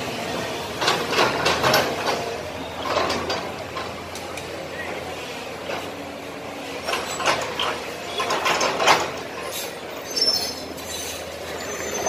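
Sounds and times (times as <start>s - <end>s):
high metallic squeal: 9.5s - 12.0s.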